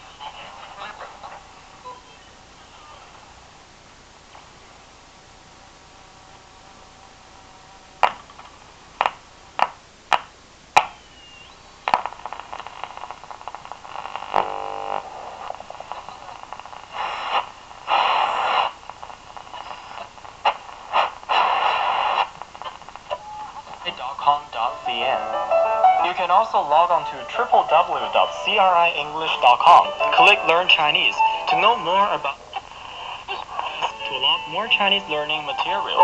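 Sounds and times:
garbled radio signal: 0.0 - 3.3, 10.8 - 25.3, 26.0 - 36.0
radio static crackles: 0.0 - 36.0
radio static hiss: 0.0 - 36.0
radio whistle: 10.8 - 12.1, 17.0 - 18.8, 19.5 - 22.3.

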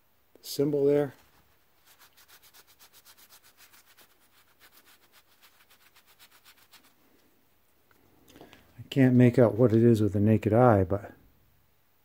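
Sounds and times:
cloth rag scrubbing on steel: 0.7 - 7.2.

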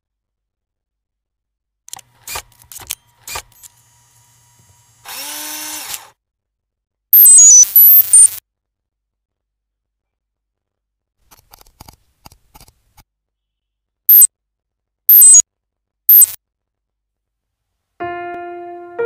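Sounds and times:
high electronic blips: 7.2 - 8.4, 15.1 - 15.4, 16.1 - 16.4
sharp clicks: 15.1 - 15.4, 16.1 - 16.4.

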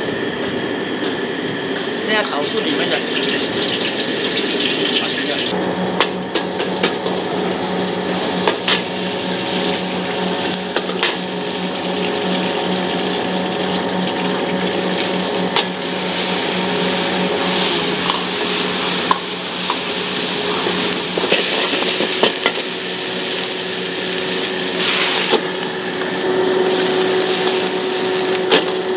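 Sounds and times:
low hum: 0.0 - 28.9
food sizzling in a wok: 1.9 - 5.5, 6.6 - 28.9.

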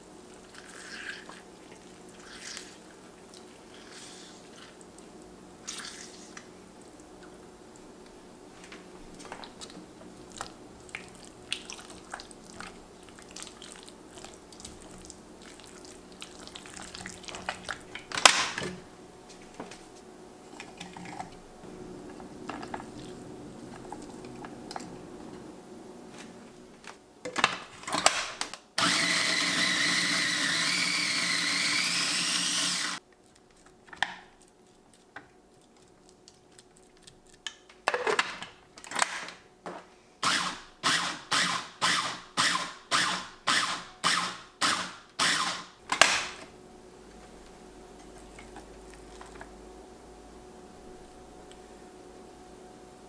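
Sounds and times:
food processor whirring: 28.8 - 33.0, 40.2 - 45.7.

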